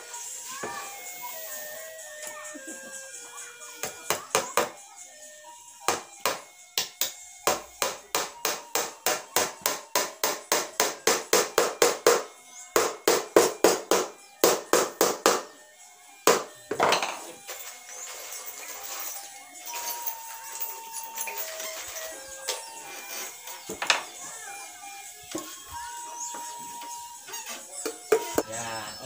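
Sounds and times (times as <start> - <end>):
hammer striking nails into wood: 5.9 - 15.5, 16.2 - 17.1.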